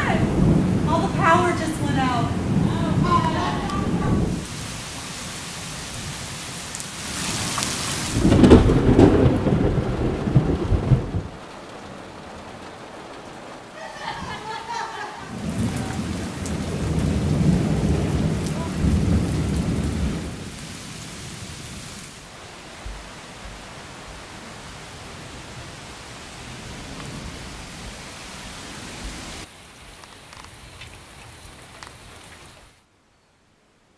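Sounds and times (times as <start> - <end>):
rolls of thunder: 0.0 - 4.6, 8.1 - 11.8, 12.5 - 20.7
heavy rain falling: 0.0 - 32.9.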